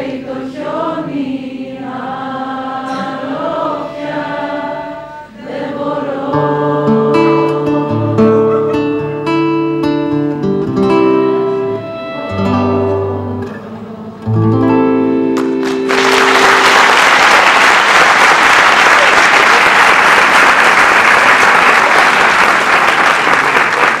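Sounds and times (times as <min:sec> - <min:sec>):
classical guitar playing: 0:01.8 - 0:16.9
audience applause: 0:15.4 - 0:24.0.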